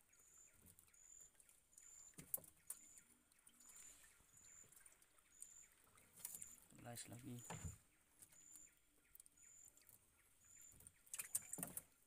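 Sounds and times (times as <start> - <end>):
faint high chirp: 0.0 - 11.8
knocks in a small boat: 7.4 - 7.8.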